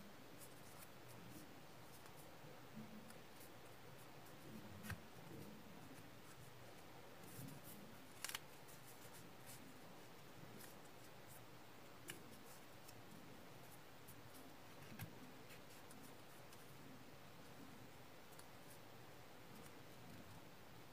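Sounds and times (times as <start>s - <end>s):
paper being folded and creased: 7.2s - 9.7s.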